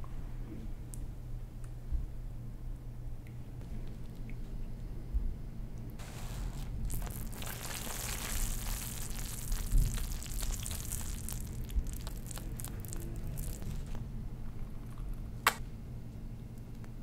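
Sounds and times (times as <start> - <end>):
molten sugar hiss: 6.0 - 14.0
molten sugar sticky crackle: 6.0 - 15.5.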